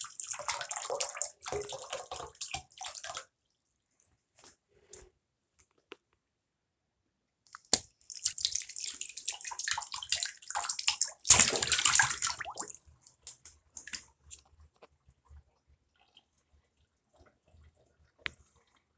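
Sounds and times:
water drips: 0:00.0 - 0:04.2, 0:07.5 - 0:14.5.

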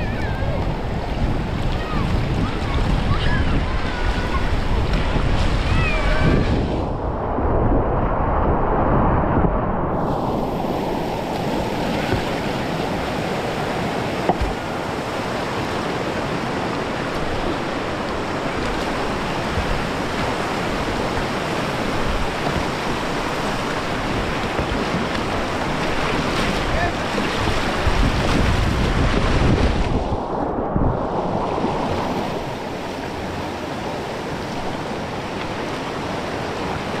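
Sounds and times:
river water rushing: 0:00.0 - 0:07.3, 0:09.9 - 0:37.0.

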